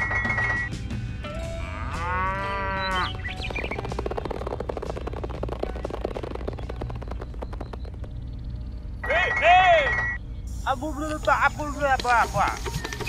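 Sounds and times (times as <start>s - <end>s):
cow mooing: 1.4s - 3.1s
fast steady ticking: 2.9s - 9.4s.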